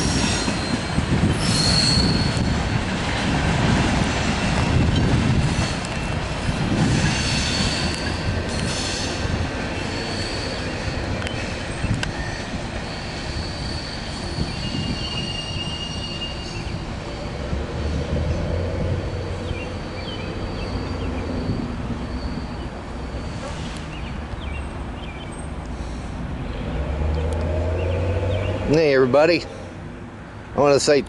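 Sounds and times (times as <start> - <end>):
wheels squealing: 0.0 - 2.8, 6.8 - 24.7
train cars rumbling on rails: 0.0 - 31.0.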